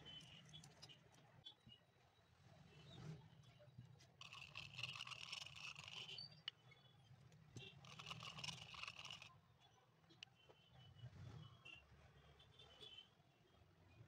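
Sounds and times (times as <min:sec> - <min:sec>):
glue brush scraping in metal tin: 0:04.2 - 0:06.2, 0:07.9 - 0:09.3.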